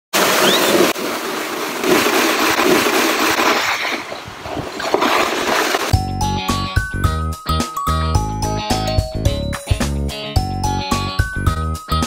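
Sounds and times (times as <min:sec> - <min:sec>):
sled scraping over snow: 0:00.2 - 0:06.0
chiming jingle with beat: 0:06.0 - 0:12.0.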